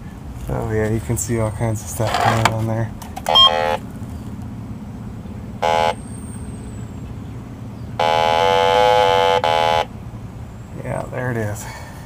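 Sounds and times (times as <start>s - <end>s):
leak detector buzzy beeps: 3.3s - 3.8s, 5.6s - 6.2s, 8.0s - 9.9s.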